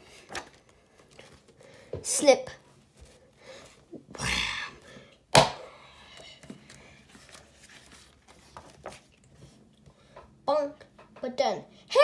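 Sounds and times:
book pages rustling: 0.0s - 1.6s, 6.4s - 9.8s.

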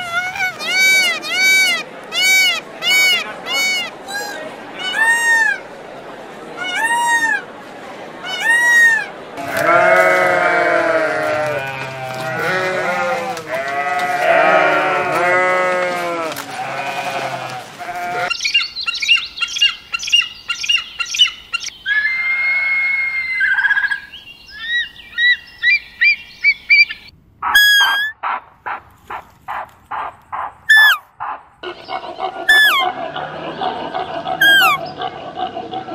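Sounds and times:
overlapping animal calls: 0.0s - 5.7s, 26.7s - 35.9s
high chirps and whistles: 24.6s - 28.2s, 30.7s - 31.0s, 34.4s - 34.8s
high downward-sliding cries: 27.5s - 28.2s, 30.7s - 31.0s, 32.5s - 32.9s, 34.4s - 34.8s.

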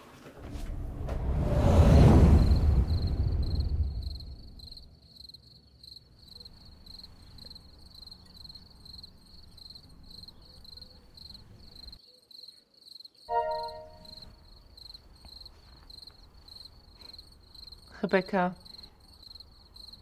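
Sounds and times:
deep loud whoosh: 0.4s - 4.9s
crickets chirping: 1.4s - 17.9s, 18.6s - 20.0s
faint night hiss: 13.3s - 15.8s.

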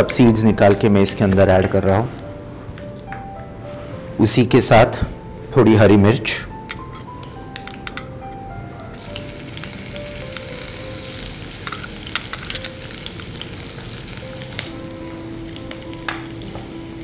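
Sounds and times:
spices sizzling in oil: 8.9s - 17.0s.

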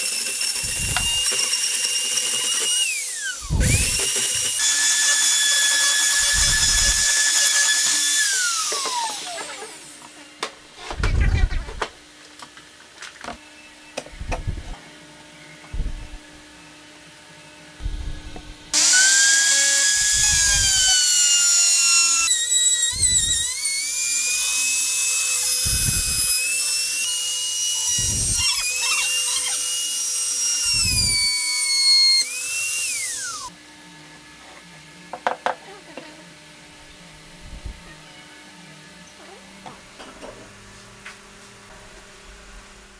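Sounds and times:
router whining cutting wood: 0.0s - 11.9s, 15.7s - 33.6s.

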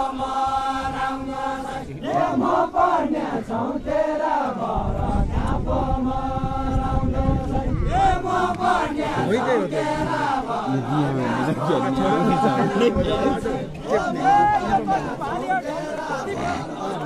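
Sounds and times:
group singing in unison: 0.0s - 17.0s.

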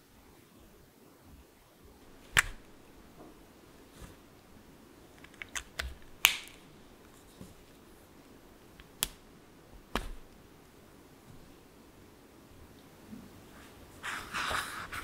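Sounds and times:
plastic pen caps clicking: 5.2s - 6.6s.

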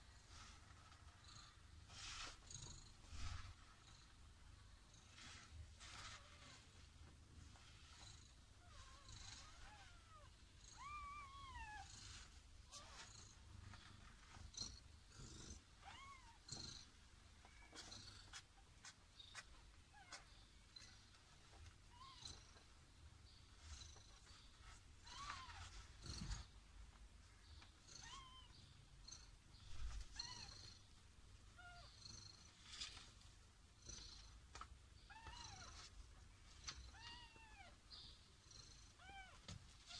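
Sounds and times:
faint low purr: 7.8s - 17.0s.

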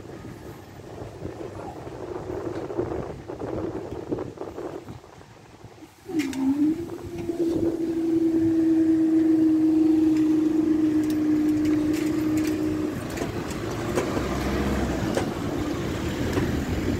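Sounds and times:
road traffic moving off: 5.9s - 16.9s
barrier mechanism humming: 6.1s - 16.6s.

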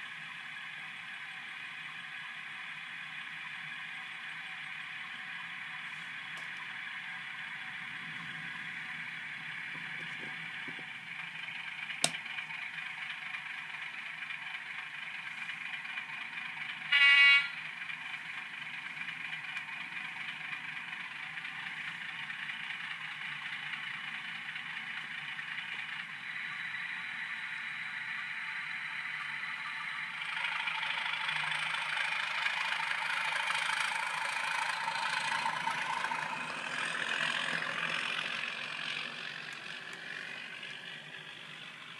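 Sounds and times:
diesel engine idling through small speaker: 0.0s - 41.9s
horn blast: 16.9s - 17.6s.

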